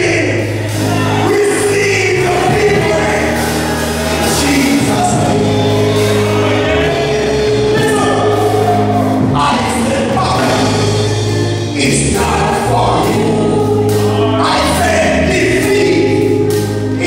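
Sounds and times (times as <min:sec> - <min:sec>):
man singing through a microphone: 0:00.0 - 0:10.9, 0:11.7 - 0:17.0
amplified gospel backing music: 0:00.0 - 0:17.0
voices singing held notes: 0:00.0 - 0:17.0.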